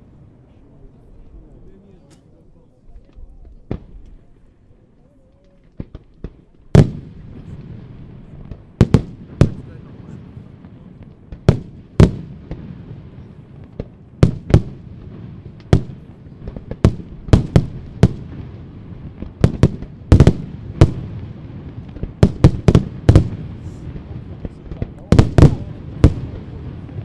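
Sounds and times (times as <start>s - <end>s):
firework shells booming: 5.6s - 27.0s.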